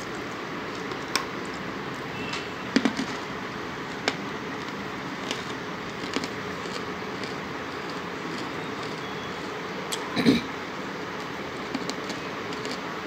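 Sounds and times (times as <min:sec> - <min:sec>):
hard clay pieces crunching: 0:02.7 - 0:10.0, 0:11.6 - 0:12.9.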